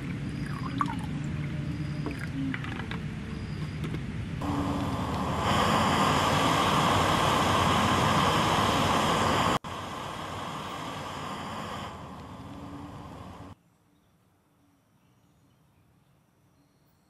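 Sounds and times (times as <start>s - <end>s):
water boiling: 0.0s - 3.0s, 4.4s - 13.6s
gas burner hissing: 3.4s - 13.6s.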